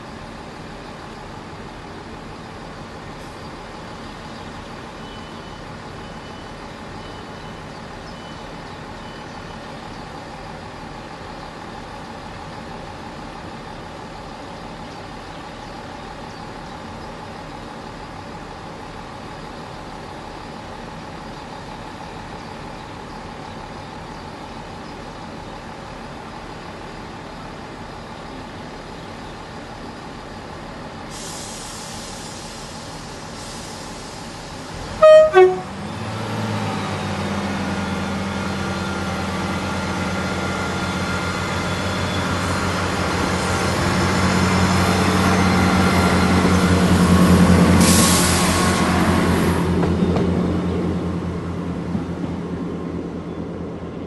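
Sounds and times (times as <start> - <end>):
diesel train engines idling: 0.0 - 54.0
compressed air hiss: 31.1 - 34.5, 47.8 - 48.6
faint high beeps: 35.0 - 35.7.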